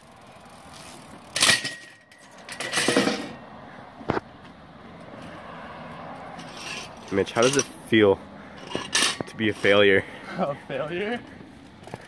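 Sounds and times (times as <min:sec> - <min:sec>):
bike hitting metal rail clang: 0:01.3 - 0:03.4
scraping clatter on rail: 0:01.3 - 0:03.4, 0:06.4 - 0:07.7.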